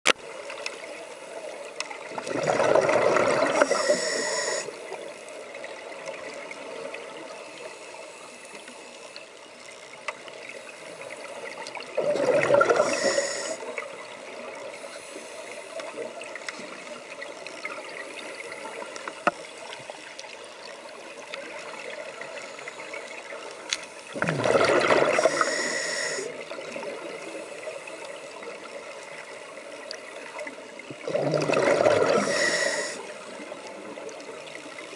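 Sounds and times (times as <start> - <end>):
faint underwater hiss: 0.2 - 34.9
scuba regulator exhale bubbling: 2.1 - 4.7, 11.9 - 13.8, 24.1 - 27.2, 30.9 - 33.1
small clicks: 23.5 - 23.9.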